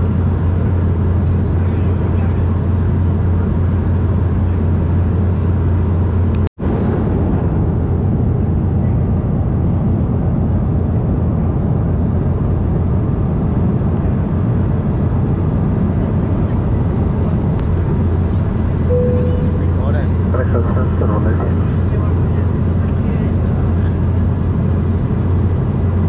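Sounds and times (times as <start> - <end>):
jet engine drone: 0.0 - 26.0
rush of airflow: 6.6 - 9.2.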